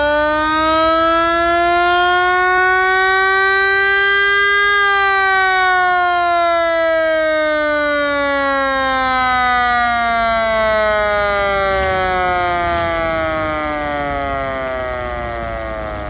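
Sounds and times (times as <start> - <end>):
mechanical siren wailing: 0.0 - 16.0
low engine rumble: 9.8 - 16.0.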